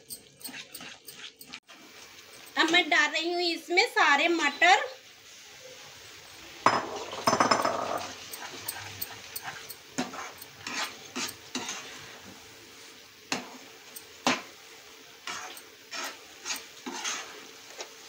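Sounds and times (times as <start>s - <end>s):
spoon scraping and knocking pan: 0.0s - 1.6s, 6.7s - 12.4s, 13.3s - 14.6s, 15.2s - 18.0s
low sizzle: 0.0s - 18.0s.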